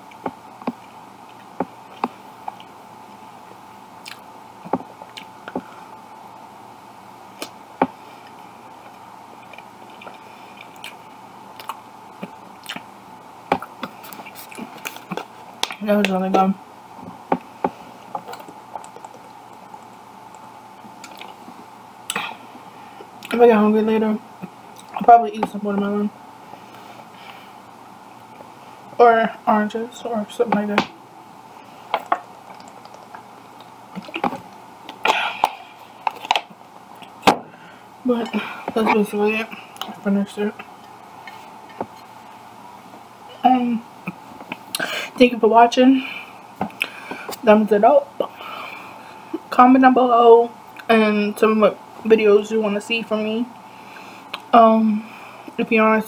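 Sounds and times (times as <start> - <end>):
faint steady hum: 0.0 - 56.0
person chewing food: 4.0 - 5.7, 8.8 - 12.9, 17.4 - 22.3, 31.8 - 37.2.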